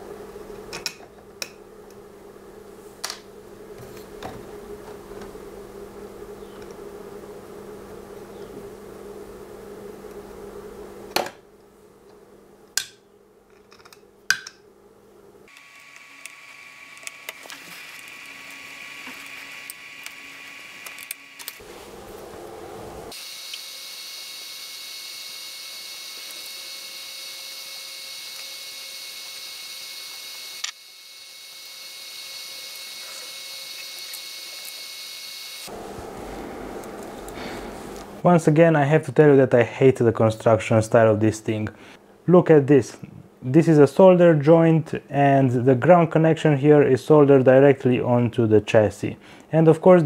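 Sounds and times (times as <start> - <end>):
faint hum: 0.0 - 34.9, 35.6 - 49.9
high-pitched electrical whine: 15.5 - 39.3.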